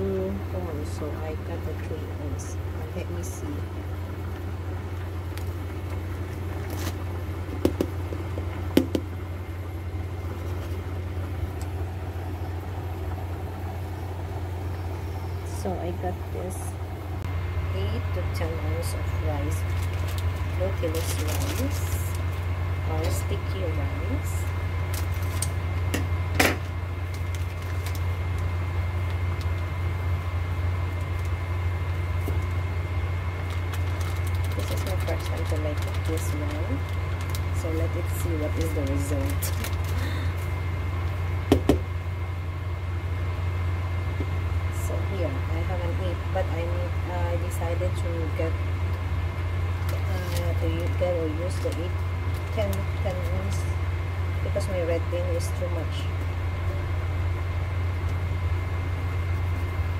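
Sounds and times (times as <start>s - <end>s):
steady low hum: 0.0s - 59.9s
plastic bag rustling: 6.2s - 7.5s, 19.1s - 29.8s, 32.1s - 40.6s, 49.8s - 53.7s
plastic cup knocking on countertop: 7.6s - 8.0s, 8.8s - 9.1s, 41.5s - 41.8s.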